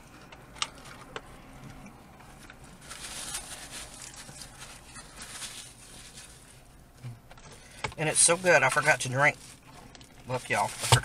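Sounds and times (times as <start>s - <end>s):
paper wrappers rustling: 2.2s - 6.8s, 7.4s - 11.0s.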